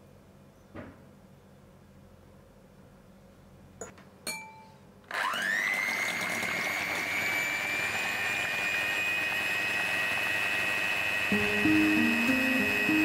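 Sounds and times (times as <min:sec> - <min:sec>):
electric hand mixer whining: 0:05.1 - 0:13.0.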